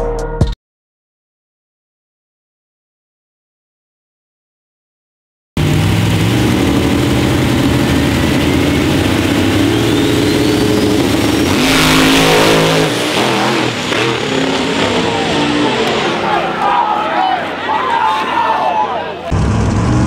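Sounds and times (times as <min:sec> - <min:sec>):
thin rising whine: 0:05.6 - 0:18.1
race car engine revving: 0:05.6 - 0:20.0
race cars launching: 0:05.6 - 0:20.0.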